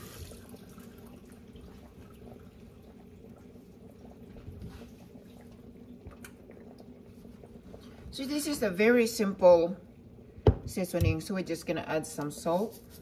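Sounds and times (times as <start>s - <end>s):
hands rubbed with paper towel: 12.5s - 13.0s.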